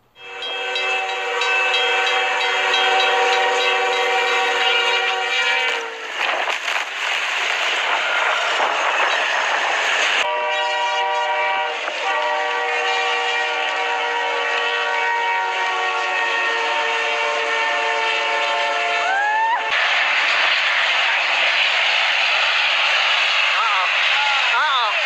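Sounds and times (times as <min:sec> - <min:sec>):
locomotive air horn blast: 0:00.2 - 0:06.2, 0:10.2 - 0:19.3
snowplow train throwing snow: 0:00.5 - 0:17.2, 0:19.7 - 0:25.0.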